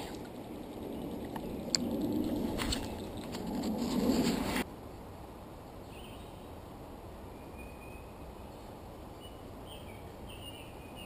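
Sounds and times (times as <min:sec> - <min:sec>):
low background noise: 0:00.0 - 0:11.0
faint bird chirps: 0:07.3 - 0:11.0.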